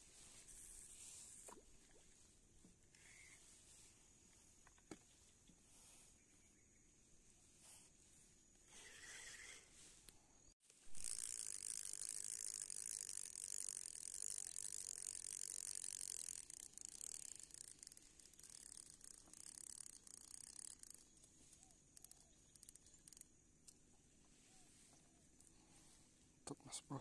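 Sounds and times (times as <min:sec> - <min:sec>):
fishing reel ratchety whirr: 0:02.9 - 0:03.4, 0:10.7 - 0:23.3.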